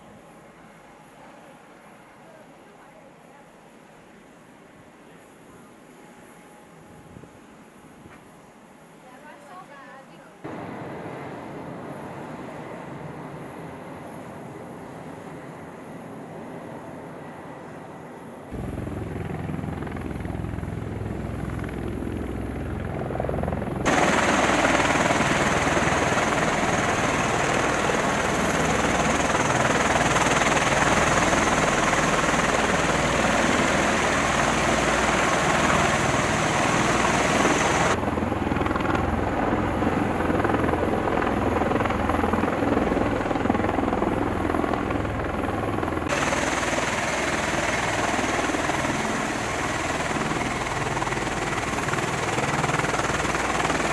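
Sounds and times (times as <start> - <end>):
aircraft turbine roar: 10.4 - 53.9
low rotor throb: 18.6 - 27.4.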